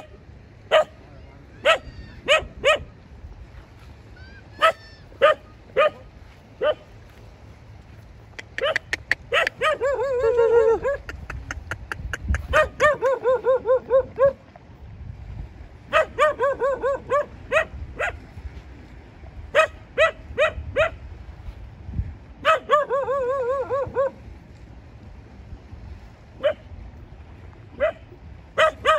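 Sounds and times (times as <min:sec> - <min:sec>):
dog barking: 0:00.7 - 0:01.0, 0:01.6 - 0:02.9, 0:04.6 - 0:06.9, 0:08.6 - 0:11.1, 0:12.5 - 0:14.4, 0:15.9 - 0:18.2, 0:19.5 - 0:21.0, 0:22.4 - 0:24.2, 0:26.4 - 0:26.7, 0:27.8 - 0:28.0, 0:28.6 - 0:28.9.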